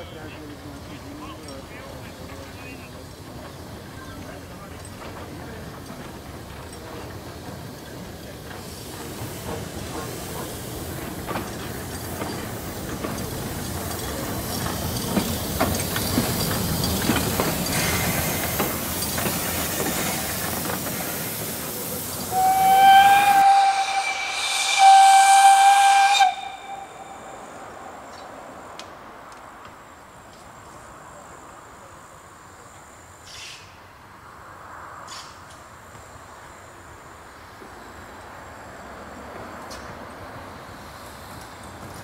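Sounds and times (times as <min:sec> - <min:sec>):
steam locomotive hissing: 0:00.0 - 0:28.8
steam whistle blasts: 0:22.3 - 0:27.8.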